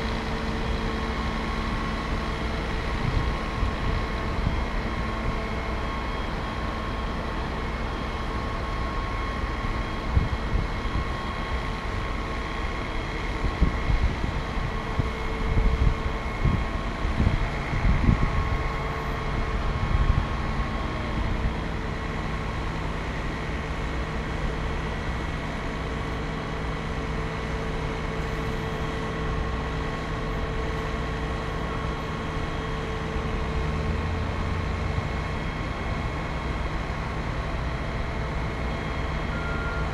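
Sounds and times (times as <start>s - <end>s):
truck engine and hydraulics running: 0.0s - 39.9s
wind buffeting microphone: 2.9s - 4.8s, 13.4s - 21.5s.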